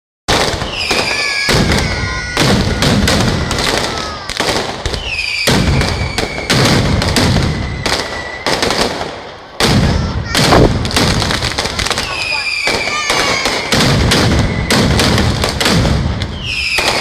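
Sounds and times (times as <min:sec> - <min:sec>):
firecrackers banging: 0:00.3 - 0:17.0
high falling whistles: 0:05.0 - 0:06.6, 0:07.5 - 0:08.7, 0:12.3 - 0:15.0, 0:16.3 - 0:17.0.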